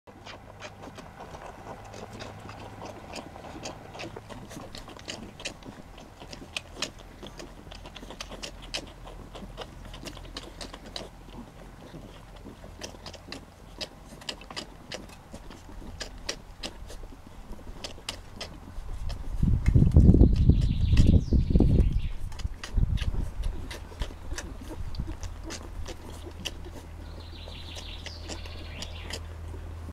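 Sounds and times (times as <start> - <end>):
puppies suckling: 0.1 - 29.9.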